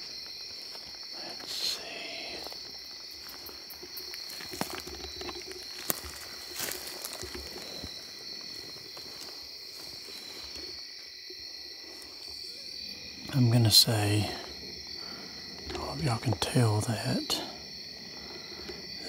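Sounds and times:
crickets trilling: 0:00.0 - 0:19.0.

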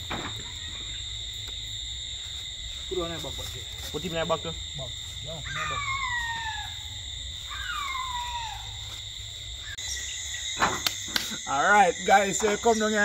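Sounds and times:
crickets trilling: 0:00.0 - 0:13.0
falling call: 0:05.4 - 0:08.9.

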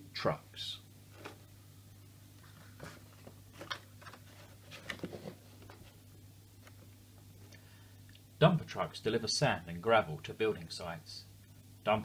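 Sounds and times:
faint electrical hum: 0:00.0 - 0:12.0
book pages rustling: 0:01.1 - 0:01.5, 0:02.4 - 0:06.9.

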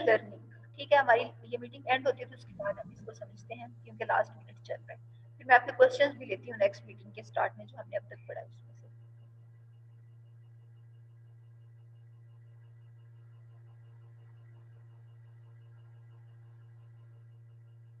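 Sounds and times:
low electrical hum: 0:00.0 - 0:18.0
faint pulsing high tone: 0:01.2 - 0:09.1.

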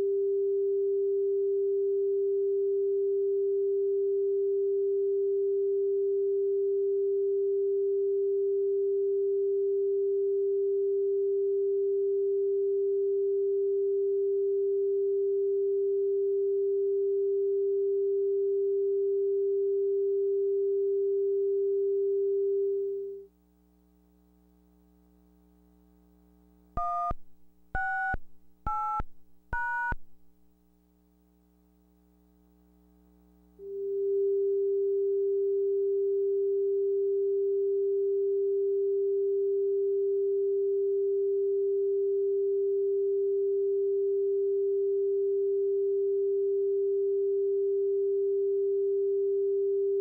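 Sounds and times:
touch-tone beeps: 0:27.8 - 0:30.1.

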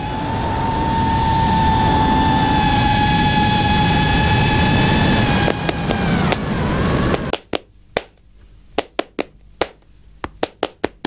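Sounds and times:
drone motors whining: 0:00.0 - 0:07.4
wind rush: 0:00.0 - 0:07.4.

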